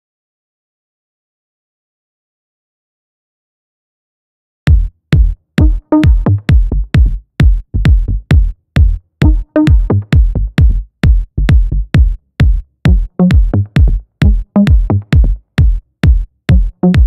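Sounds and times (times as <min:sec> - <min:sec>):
drum machine kick: 0:04.7 - 0:17.0
synth notes: 0:05.6 - 0:06.7, 0:09.2 - 0:10.2.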